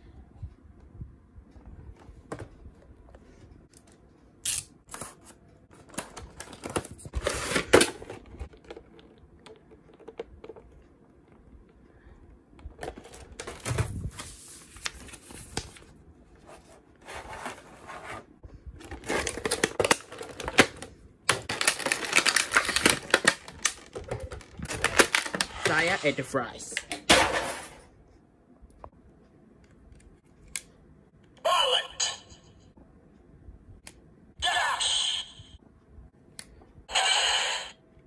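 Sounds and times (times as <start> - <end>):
cardboard and plastic rustling: 4.9 - 10.7, 12.6 - 26.0.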